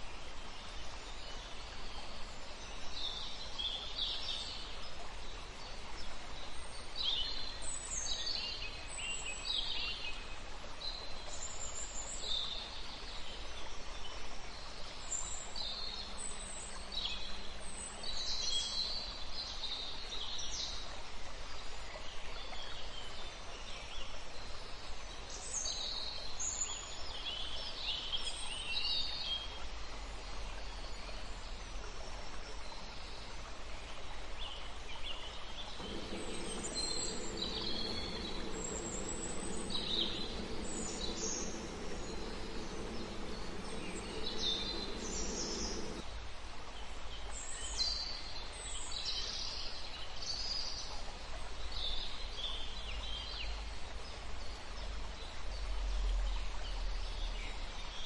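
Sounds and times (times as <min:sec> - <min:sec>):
small birds chirping: 0:35.8 - 0:46.0
low steady hum: 0:35.8 - 0:46.1
steady background hiss: 0:35.8 - 0:46.1.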